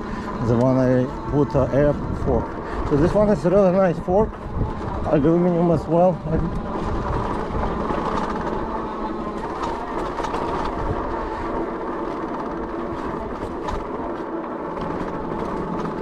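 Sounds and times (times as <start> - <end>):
bike tires rumbling on dirt: 0.0 - 16.0.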